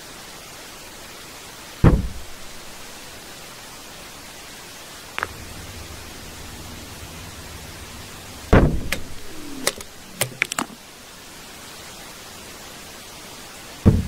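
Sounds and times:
steady hiss and low hum: 0:00.0 - 0:14.0
sharp knocks: 0:01.8 - 0:02.2, 0:08.5 - 0:10.7
heavy thud with low rumble: 0:01.8 - 0:02.9, 0:05.2 - 0:10.1.

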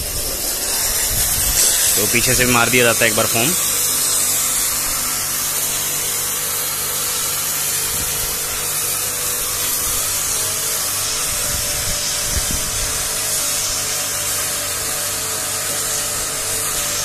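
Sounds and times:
hiss of water spray: 0:00.0 - 0:17.0
pressure washer motor hum: 0:00.0 - 0:17.0.

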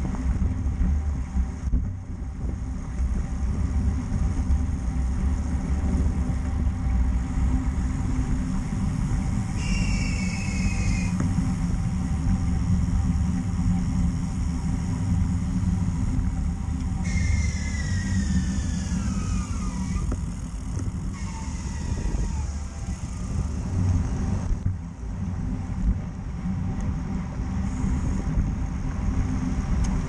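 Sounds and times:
bicycle road noise: 0:00.0 - 0:30.0
high whine falling in pitch: 0:06.8 - 0:24.6
wind on microphone: 0:15.6 - 0:30.0.

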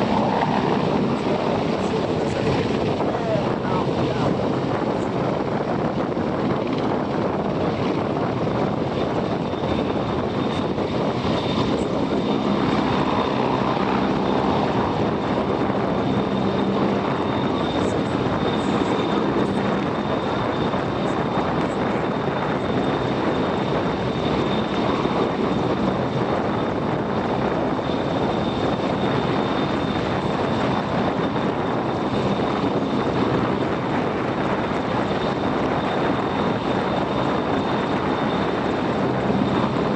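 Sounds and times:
helicopter hovering: 0:00.0 - 0:39.9
high turbine whine: 0:00.0 - 0:39.9.

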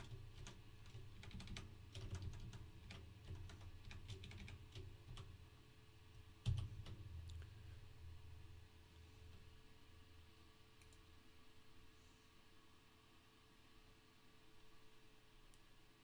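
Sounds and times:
computer keyboard typing: 0:00.0 - 0:05.4, 0:06.4 - 0:07.0.

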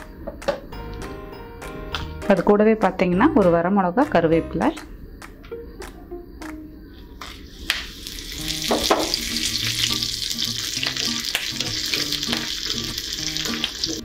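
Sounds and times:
spices sizzling in hot oil: 0:07.2 - 0:14.0.

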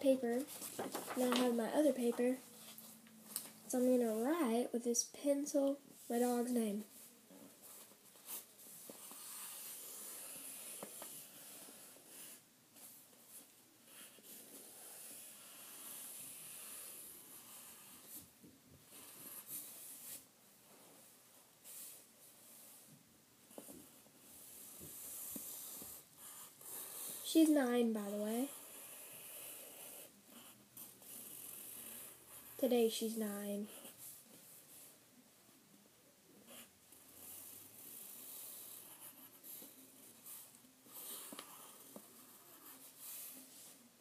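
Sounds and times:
pencil writing on paper: 0:08.2 - 0:12.4, 0:13.9 - 0:18.2, 0:23.8 - 0:32.6, 0:36.5 - 0:43.5.

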